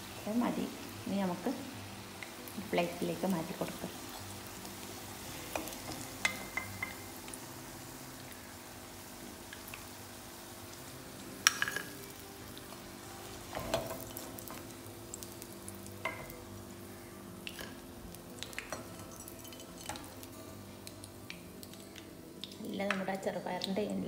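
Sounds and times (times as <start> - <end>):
oil sizzling in deep fryer: 0.0 - 24.0
metal spoon clinking: 11.5 - 11.9.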